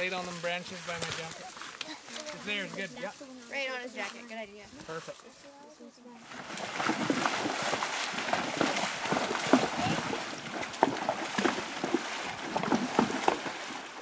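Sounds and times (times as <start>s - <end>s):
hooves splashing in water: 0.0s - 4.1s, 6.2s - 14.0s
river water rushing: 6.2s - 14.0s.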